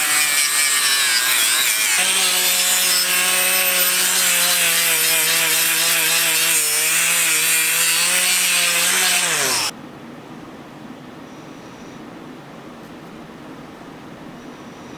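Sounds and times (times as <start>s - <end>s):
power tool motor: 0.0s - 9.7s.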